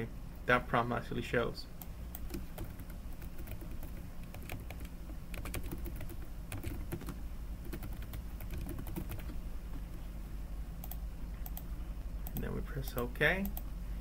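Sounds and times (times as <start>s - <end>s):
low steady hum: 0.0s - 14.0s
keyboard typing: 2.1s - 9.4s, 10.8s - 12.5s.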